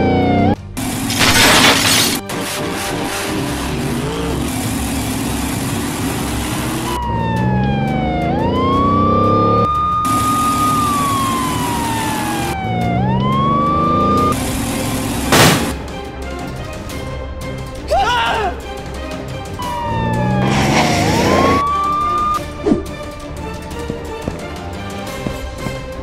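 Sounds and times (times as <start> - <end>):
police siren wailing: 0.0 - 0.6, 6.1 - 14.4, 19.5 - 22.4
vehicle engine revving: 0.0 - 1.2, 2.2 - 15.8, 19.5 - 23.0.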